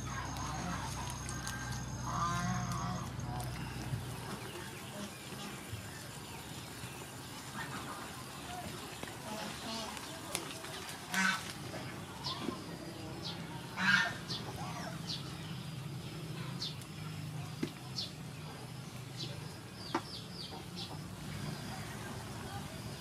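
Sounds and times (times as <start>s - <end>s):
waterfowl calling: 0.0s - 6.1s, 7.2s - 15.3s.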